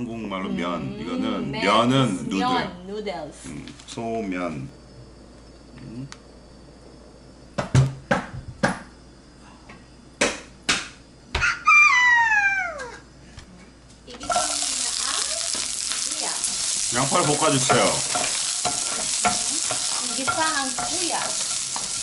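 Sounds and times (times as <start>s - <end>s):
onion sizzling in hot oil: 14.2s - 22.0s.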